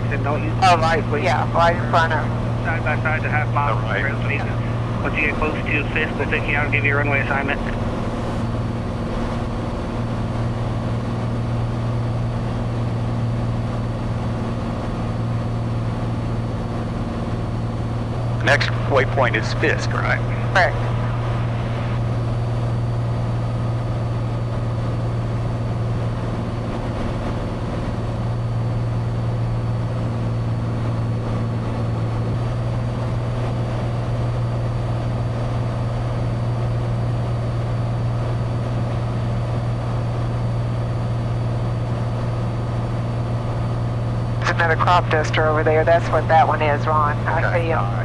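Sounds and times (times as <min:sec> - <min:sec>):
small plane engine droning: 0:00.0 - 0:48.0.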